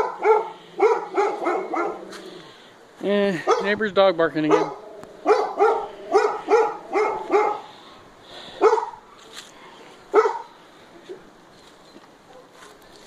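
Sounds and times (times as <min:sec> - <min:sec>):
dog barking: 0:00.0 - 0:02.2, 0:03.4 - 0:03.8, 0:04.4 - 0:07.7, 0:08.6 - 0:09.0, 0:10.1 - 0:11.3, 0:12.3 - 0:12.7.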